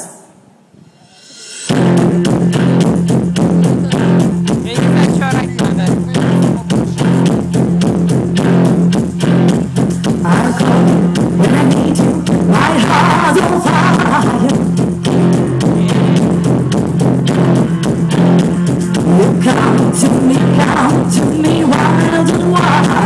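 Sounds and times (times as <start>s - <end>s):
pop backing track with heavy bass: 0.8s - 23.0s
woman singing: 10.0s - 14.8s, 18.9s - 23.0s.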